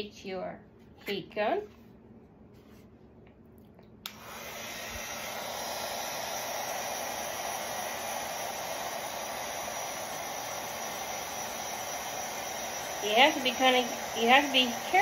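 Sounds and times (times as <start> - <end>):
heat gun blowing air: 4.1 - 15.0.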